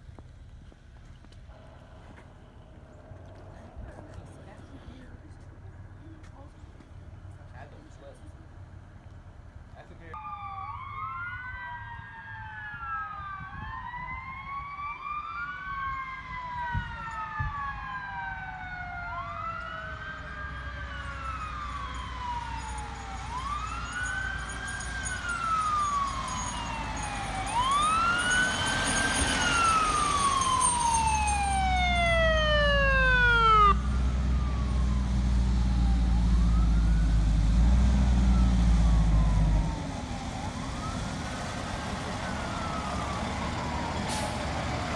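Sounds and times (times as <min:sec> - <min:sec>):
fire engine rumble: 0:00.0 - 0:44.9
emergency sirens wailing: 0:10.1 - 0:44.9.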